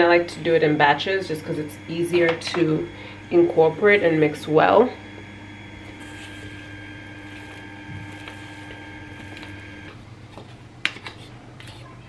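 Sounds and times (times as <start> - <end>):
machine hum with high whine: 0.0 - 11.6
spatula scraping bowl: 5.9 - 12.0.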